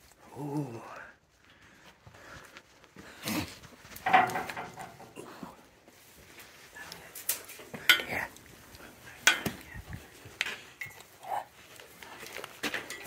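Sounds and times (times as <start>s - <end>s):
metallic clinks and knocks: 4.0s - 5.2s, 7.1s - 8.4s, 9.2s - 9.8s, 10.4s - 11.3s, 12.6s - 13.0s.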